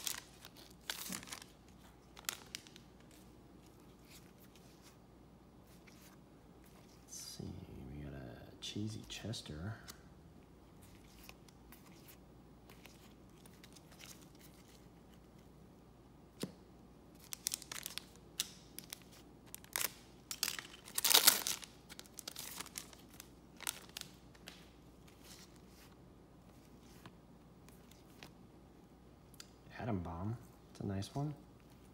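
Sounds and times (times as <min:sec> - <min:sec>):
card pack wrapper tearing: 0:00.0 - 0:02.8, 0:17.2 - 0:24.1
trading cards rustling: 0:00.0 - 0:05.0, 0:10.8 - 0:15.5, 0:17.1 - 0:28.4.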